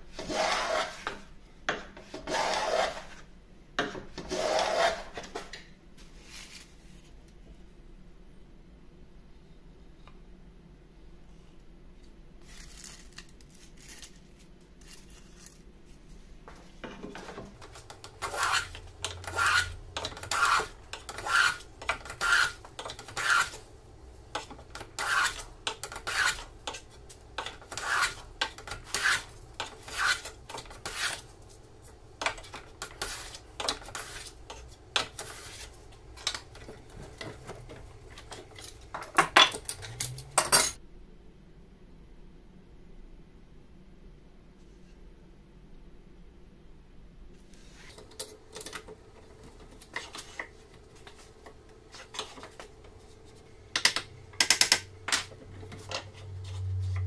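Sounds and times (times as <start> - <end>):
hand plane rasping swish: 0.2 - 1.1, 2.2 - 3.1, 4.3 - 5.1, 18.2 - 23.6, 24.8 - 26.8, 27.4 - 31.2.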